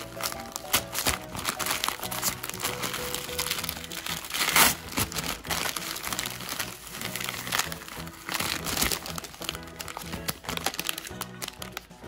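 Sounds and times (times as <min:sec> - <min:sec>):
background music: 0:00.0 - 0:12.0
plastic bag crinkling: 0:00.0 - 0:12.0.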